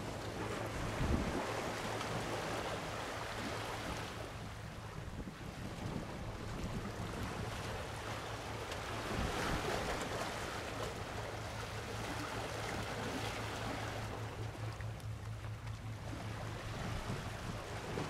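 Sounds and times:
sea waves washing: 0:00.0 - 0:18.0
wind on microphone: 0:00.8 - 0:01.8, 0:04.8 - 0:07.5.

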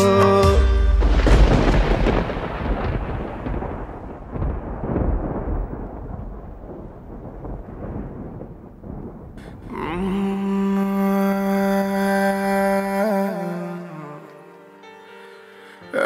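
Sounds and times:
music chord: 0:00.0 - 0:01.4
rolling thunder rumble: 0:01.0 - 0:10.8.

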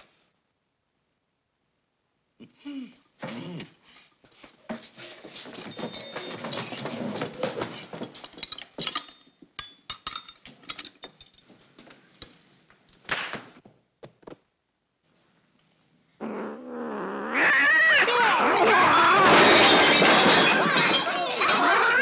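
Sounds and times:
cutlery and plates clinking: 0:05.6 - 0:11.5, 0:19.2 - 0:22.0.

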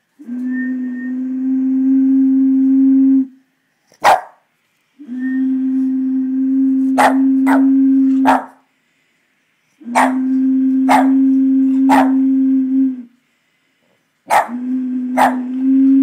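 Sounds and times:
blown bottle low note: 0:00.2 - 0:03.4, 0:05.0 - 0:08.3, 0:09.8 - 0:13.2, 0:14.5 - 0:16.0
dog barking: 0:04.0 - 0:04.4, 0:07.0 - 0:08.6, 0:09.9 - 0:10.3, 0:10.9 - 0:11.2, 0:11.9 - 0:12.2, 0:14.3 - 0:14.6, 0:15.2 - 0:15.5.

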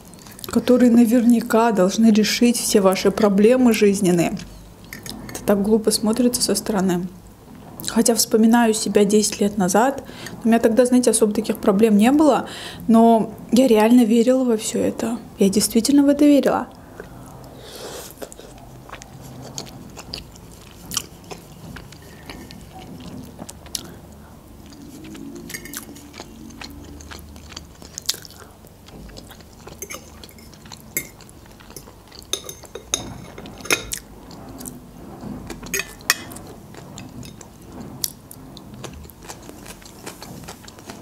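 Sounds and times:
chewing and wet mouth sounds: 0:16.7 - 0:34.8, 0:35.5 - 0:41.0
metal fork scraping on a plate: 0:24.7 - 0:27.2, 0:35.5 - 0:37.4.

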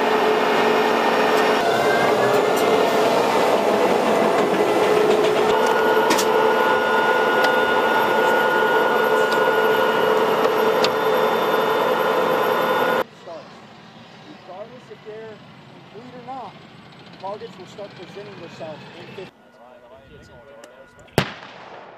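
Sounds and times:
tank engine running: 0:00.0 - 0:19.4
steady mechanical whine: 0:00.0 - 0:21.9.

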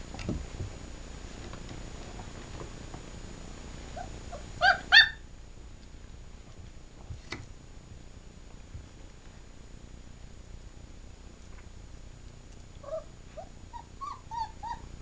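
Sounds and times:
puppy yelping: 0:04.0 - 0:05.2, 0:12.8 - 0:14.9
puppies squeaking: 0:13.7 - 0:14.9.

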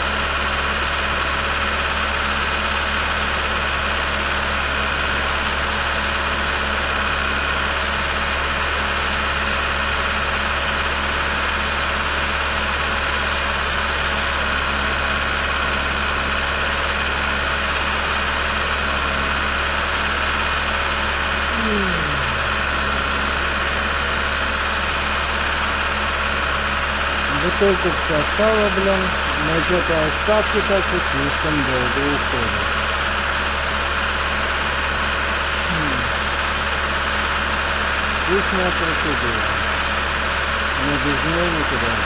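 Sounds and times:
car engine idling: 0:15.3 - 0:42.0.

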